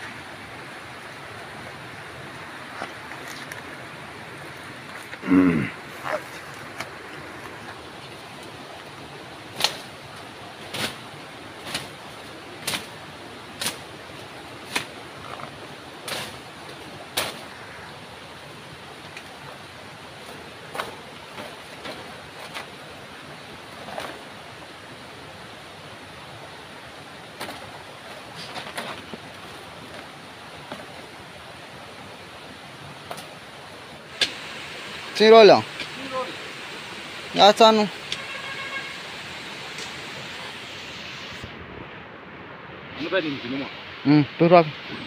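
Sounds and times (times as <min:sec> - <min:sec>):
rustles and snaps in undergrowth: 0:02.4 - 0:05.3, 0:05.9 - 0:17.9, 0:18.9 - 0:24.4, 0:27.1 - 0:31.2, 0:33.0 - 0:33.4, 0:34.1 - 0:36.4, 0:39.4 - 0:41.4.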